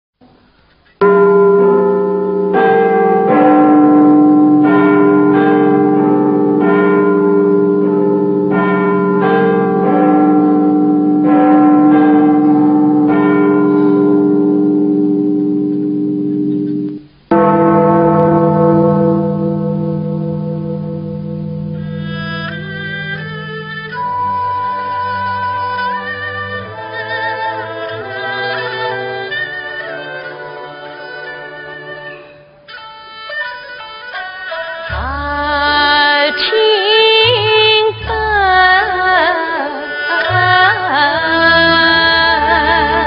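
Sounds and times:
clock chime ringing a tune: 1.0 - 32.5.

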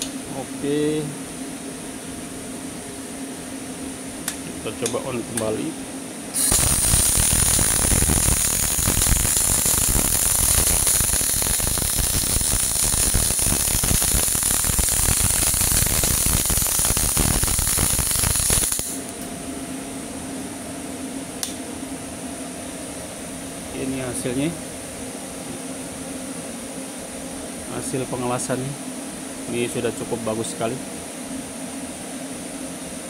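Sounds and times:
welding arc crackling hiss: 6.4 - 19.2
welding machine hum: 6.4 - 19.3.

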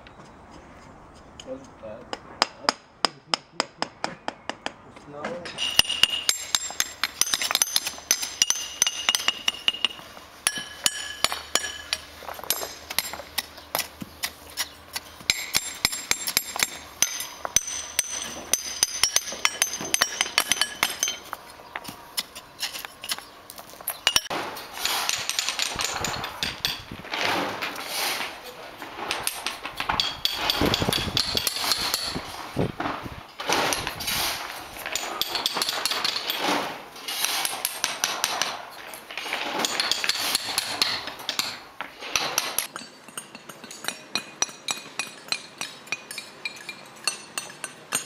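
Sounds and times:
hammer tapping cobblestones: 0.0 - 24.4, 39.6 - 48.0.

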